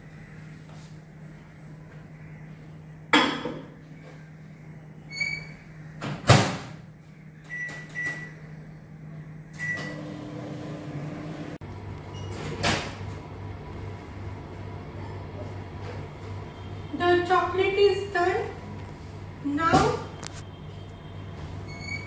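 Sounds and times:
microwave running hum: 0.0 - 22.0
microwave beeps: 7.5 - 8.4, 9.6 - 10.4, 12.1 - 13.0, 21.7 - 22.0.

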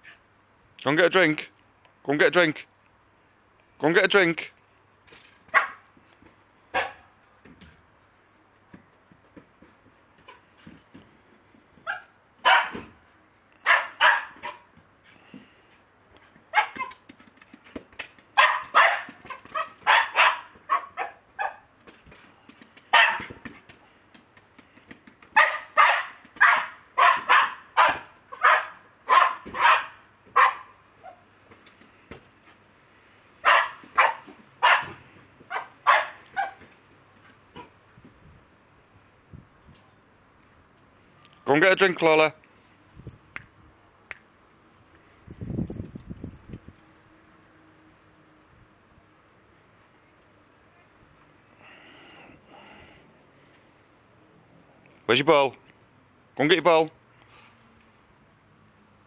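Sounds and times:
dog barking: 5.5 - 5.8, 6.8 - 7.1, 11.9 - 12.8, 13.6 - 14.7, 16.5 - 16.9, 18.4 - 21.7, 22.9 - 23.3, 25.4 - 31.2, 33.4 - 36.6.

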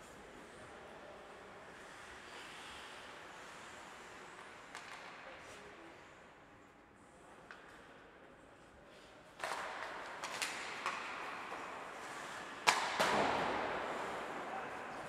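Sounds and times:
hockey sticks and puck clacking: 1.7 - 5.7, 7.4 - 8.0, 8.9 - 15.0.

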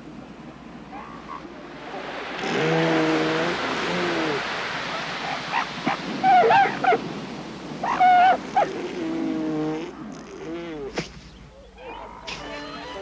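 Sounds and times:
surf washing: 0.0 - 13.0
seal calls: 0.8 - 7.1, 7.8 - 13.0
seal pup yelps: 5.2 - 7.0, 7.8 - 9.0.

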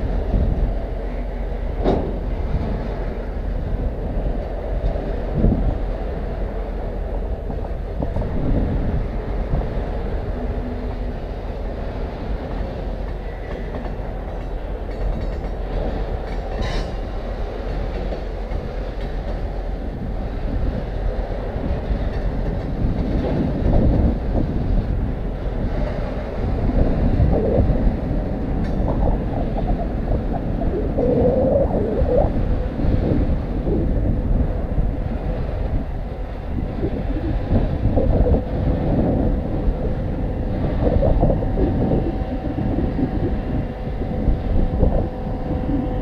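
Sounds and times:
rumble of steel wheels on rail: 0.0 - 46.0
clickety-clack over rail joints: 0.1 - 6.2, 6.8 - 27.0, 27.8 - 30.6.

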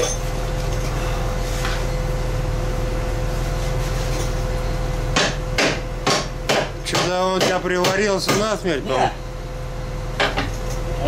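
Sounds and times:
sharp knocks: 5.2 - 8.5.

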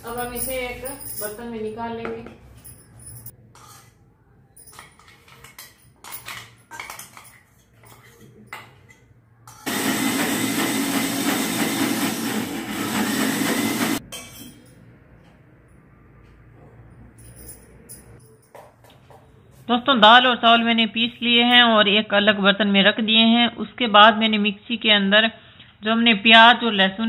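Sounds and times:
spoon scraping steel jar: 2.9 - 4.0
mixer grinder running: 9.6 - 14.0.

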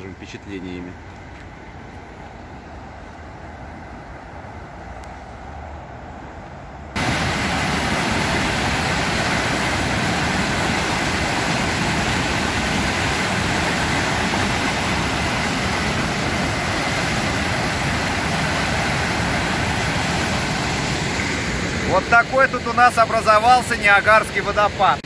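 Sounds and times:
water gushing down spillway: 7.0 - 25.0.

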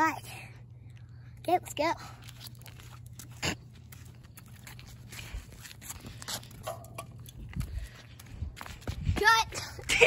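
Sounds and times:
low steady hum: 0.0 - 10.0
footsteps on concrete: 2.0 - 10.0.

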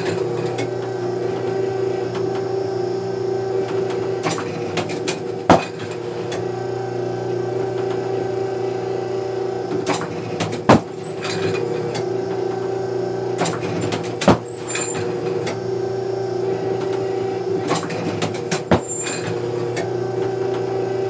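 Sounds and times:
mechanical clicks and clanks: 0.0 - 2.5, 3.6 - 6.5, 9.7 - 12.7, 13.4 - 15.6, 16.8 - 20.7
trap machine humming: 0.0 - 21.0.

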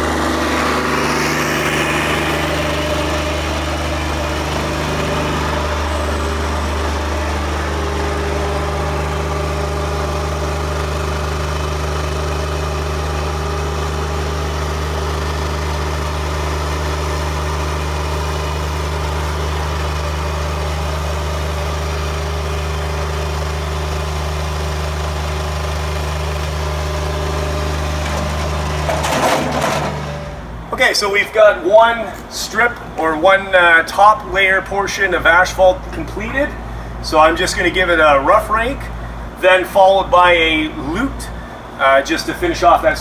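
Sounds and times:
loader engine running: 0.0 - 43.0.

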